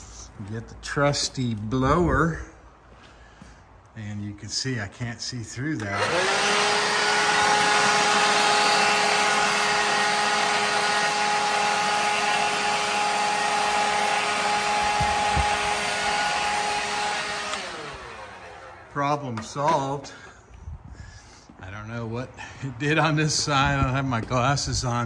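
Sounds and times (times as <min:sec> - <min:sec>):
leaf blower running: 0:05.8 - 0:19.8.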